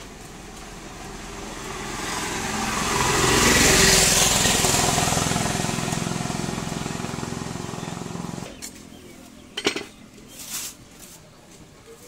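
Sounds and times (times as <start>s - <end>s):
vehicle passing by: 0.0s - 8.6s.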